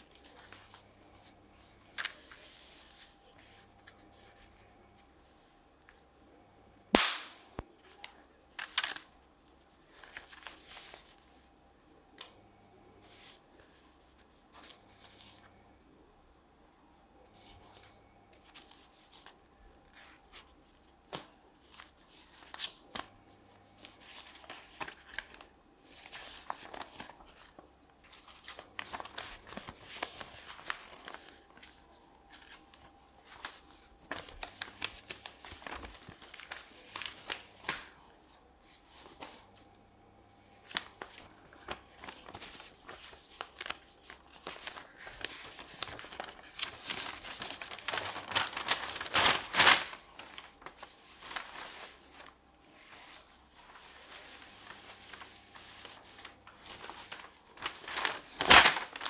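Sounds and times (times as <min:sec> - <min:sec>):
paper money rustling and crinkling: 0:00.0 - 0:06.0, 0:07.0 - 0:11.5, 0:17.3 - 0:39.7, 0:40.4 - 0:59.0
sharp paper crackles: 0:07.0 - 0:09.1, 0:23.8 - 0:38.0, 0:40.6 - 0:52.4, 0:54.0 - 0:59.0.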